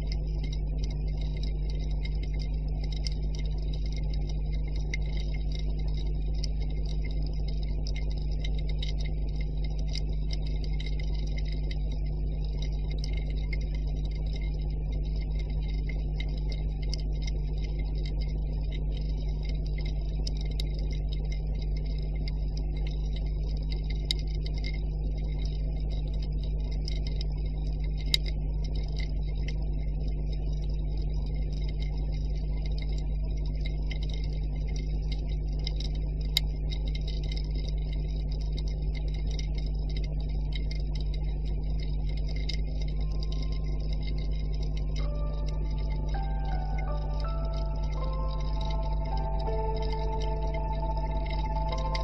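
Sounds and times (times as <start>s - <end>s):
fine crackle of ticks: 0.0s - 52.0s
low underwater hum: 0.0s - 52.0s
held tone: 43.0s - 52.0s
mallet percussion music: 45.1s - 52.0s.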